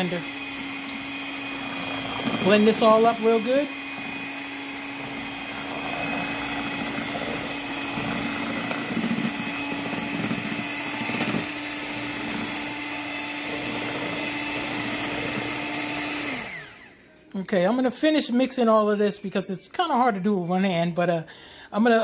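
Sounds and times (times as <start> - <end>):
electric hand mixer running: 0.0 - 17.0.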